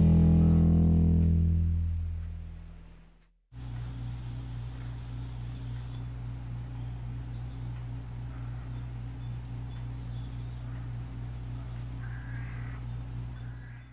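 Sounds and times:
low hum: 0.0s - 13.9s
faint bird chirps: 3.8s - 13.9s.

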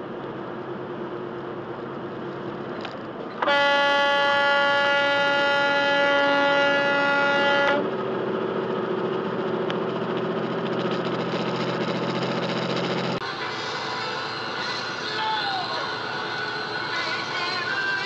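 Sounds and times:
truck engine and road noise: 0.0s - 18.0s
truck air horn blast: 3.4s - 7.9s.

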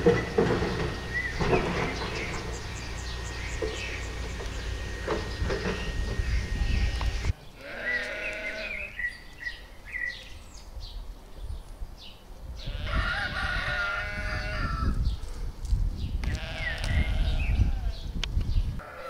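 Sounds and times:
chickens calling: 0.0s - 10.3s, 12.6s - 15.2s.

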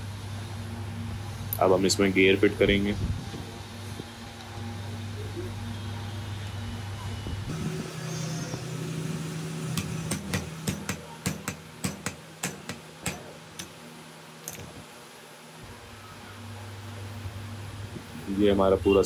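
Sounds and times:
steady low hum: 0.0s - 19.0s
sharp metal taps: 9.8s - 13.8s.

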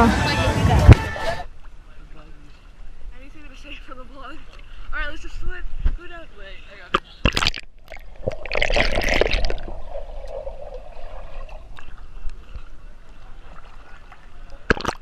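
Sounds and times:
pool water splashing: 6.9s - 15.0s.

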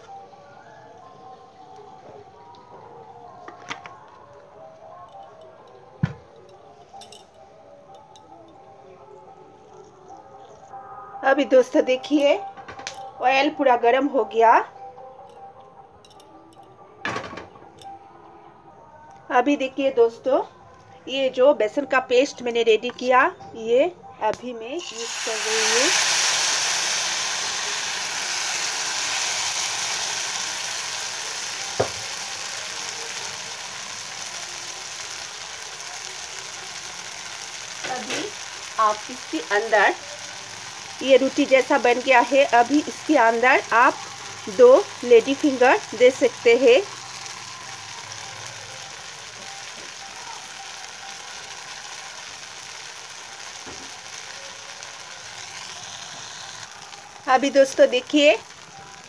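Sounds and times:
batter sizzling in hot oil: 24.8s - 59.0s.

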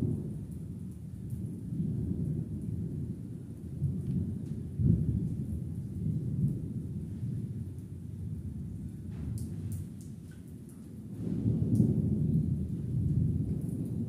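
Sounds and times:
thunder rumbling: 0.0s - 14.0s.

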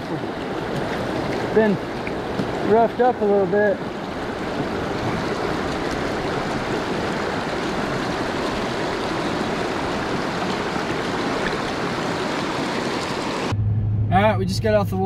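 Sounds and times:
river rushing over rocks: 0.0s - 13.5s.

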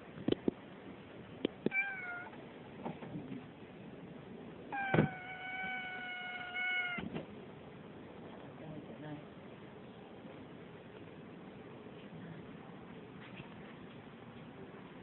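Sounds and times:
cat meowing: 1.6s - 2.4s, 4.7s - 7.1s.

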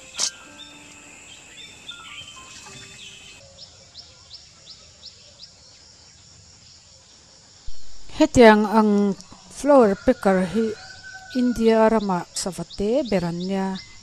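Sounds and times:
soft background music: 0.0s - 3.4s.

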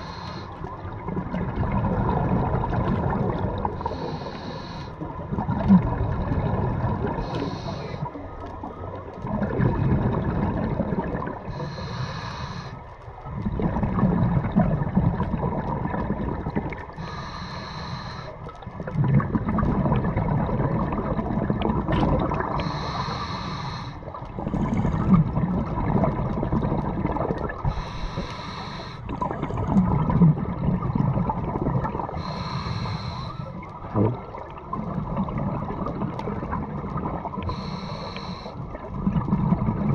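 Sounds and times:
regulator inhalation hiss: 0.0s - 0.6s, 3.8s - 5.0s, 7.2s - 8.1s, 11.5s - 12.9s, 17.0s - 18.4s, 22.6s - 24.2s, 27.7s - 29.1s, 32.2s - 33.5s, 37.5s - 38.6s
rumbling exhaust bubbles: 9.2s - 11.6s, 13.4s - 16.9s, 18.8s - 22.9s, 24.2s - 28.2s, 29.0s - 32.3s, 38.6s - 39.9s.

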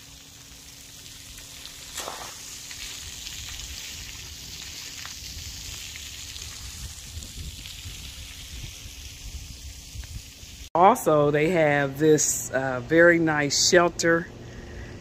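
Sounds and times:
water jets spraying onto concrete: 0.0s - 10.7s.

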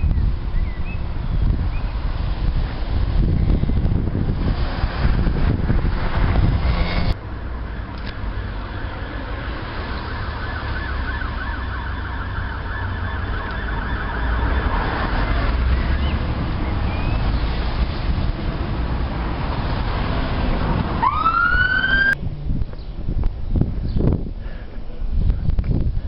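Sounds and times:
wind buffeting microphone: 0.0s - 8.3s, 13.7s - 26.0s
low traffic rumble: 0.0s - 26.0s
faint siren wailing: 8.5s - 16.0s, 21.0s - 22.2s.

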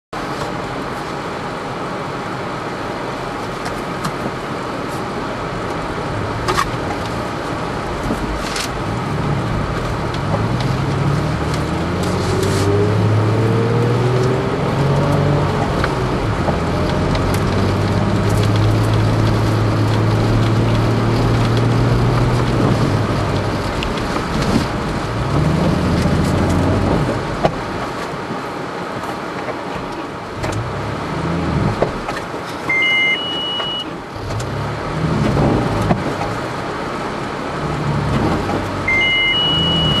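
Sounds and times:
car engine revving hard: 5.9s - 27.5s, 30.3s - 32.1s, 34.0s - 40.0s
electronic two-tone beep: 32.7s - 33.9s, 38.9s - 40.0s.

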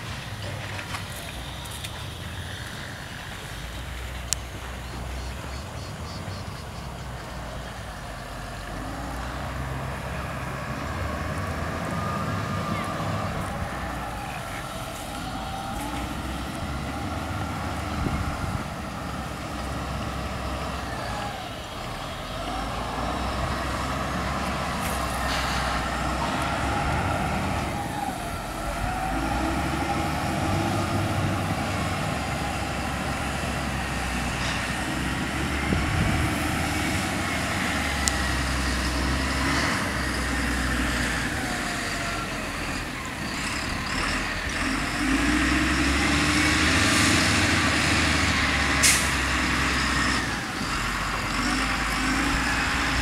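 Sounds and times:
vehicle engines rumbling: 0.0s - 53.0s.

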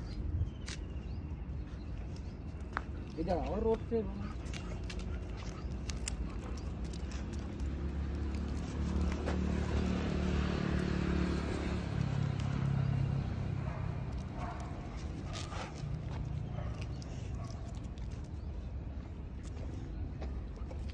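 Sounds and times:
vehicle passing on road: 4.8s - 18.2s.

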